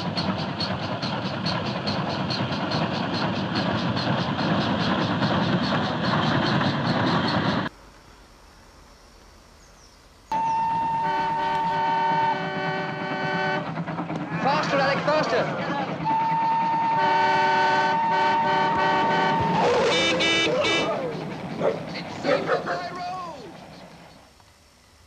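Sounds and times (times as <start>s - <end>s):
steam locomotive exhaust beating: 0.0s - 7.9s, 10.3s - 25.0s
train rumble: 0.0s - 8.0s, 10.3s - 25.0s
train horn: 10.3s - 13.7s, 16.0s - 21.0s.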